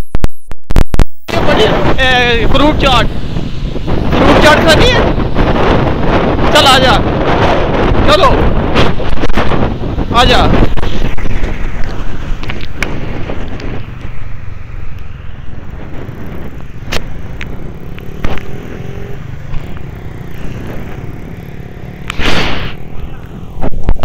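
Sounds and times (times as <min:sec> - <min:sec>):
loud rush of noise: 0:00.7 - 0:24.0
small motorcycle engine running: 0:15.7 - 0:23.6.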